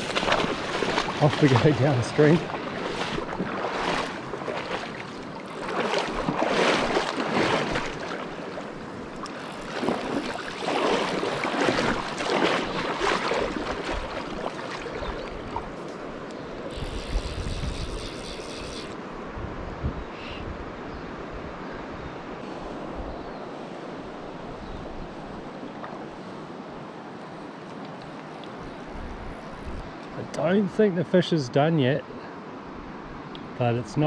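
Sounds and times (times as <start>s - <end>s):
river water rushing: 0.0s - 16.9s
fishing reel clicker ratcheting: 16.7s - 19.0s
wind buffeting microphone: 16.7s - 25.5s.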